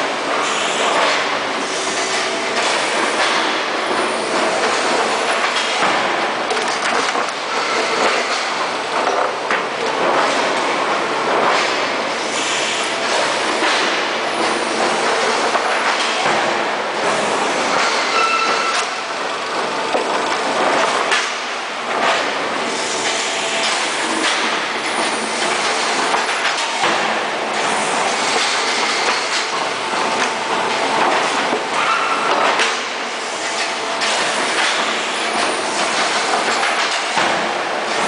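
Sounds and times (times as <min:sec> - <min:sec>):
machine squeal: 0:17.8 - 0:18.9.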